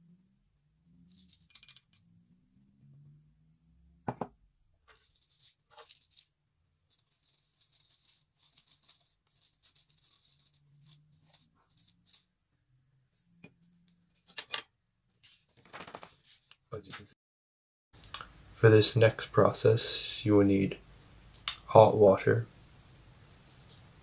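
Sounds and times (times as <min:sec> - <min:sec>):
powder sifting through sieve: 0:06.9 - 0:12.2.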